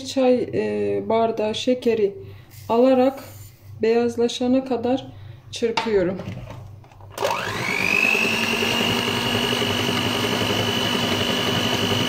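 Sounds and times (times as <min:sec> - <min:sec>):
electric hand mixer whisking: 0:07.1 - 0:12.0.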